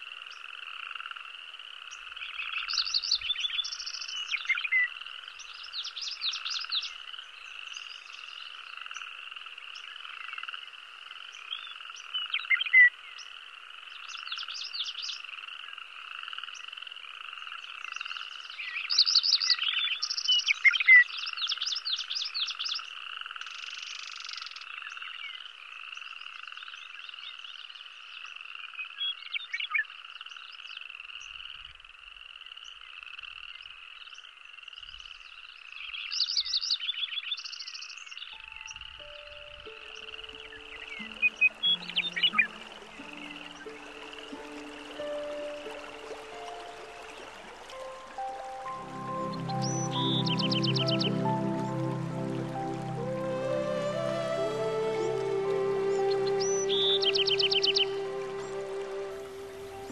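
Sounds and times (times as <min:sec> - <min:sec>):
rapid frog croaks: 0:00.0 - 0:03.0
frogs trilling: 0:00.0 - 0:59.9.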